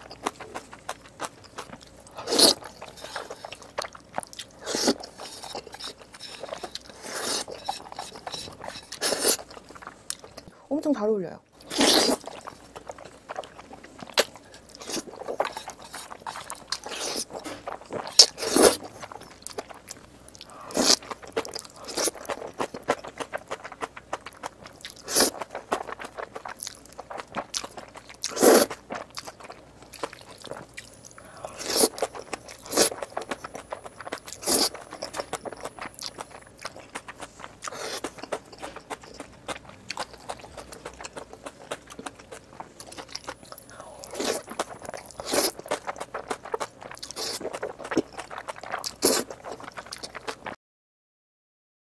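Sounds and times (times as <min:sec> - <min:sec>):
noodle slurping: 0:04.6 - 0:09.5, 0:25.0 - 0:29.1, 0:31.4 - 0:39.2, 0:43.8 - 0:49.9
wet chewing clicks: 0:11.6 - 0:50.6.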